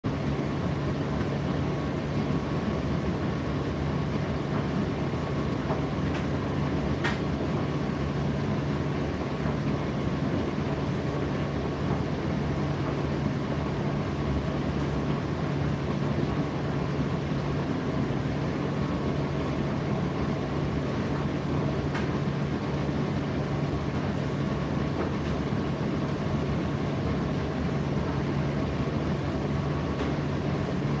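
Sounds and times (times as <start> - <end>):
tumble dryer running: 0.0 - 31.0.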